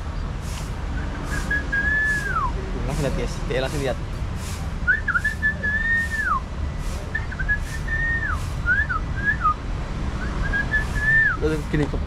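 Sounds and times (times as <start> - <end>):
person whistling: 1.0 - 2.6, 4.8 - 6.4, 7.1 - 9.6, 10.2 - 11.4.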